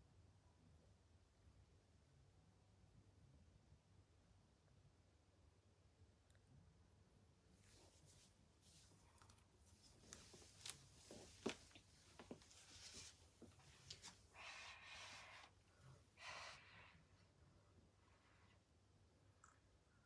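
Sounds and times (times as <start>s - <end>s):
soft rustling: 7.6s - 15.6s.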